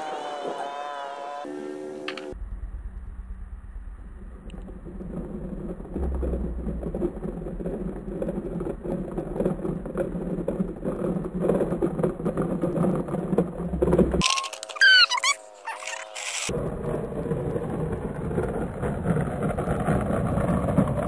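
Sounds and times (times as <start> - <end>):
wind rumbling on microphone: 3.9 - 15.0, 15.8 - 21.0
toy truck rattling: 14.2 - 16.5.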